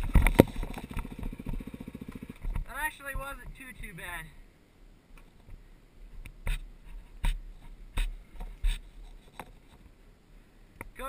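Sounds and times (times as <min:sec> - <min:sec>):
wind rumble on microphone: 0:00.0 - 0:04.0.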